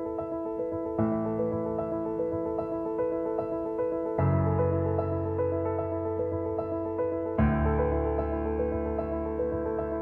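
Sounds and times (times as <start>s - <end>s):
piano instrumental music: 0.0s - 10.0s.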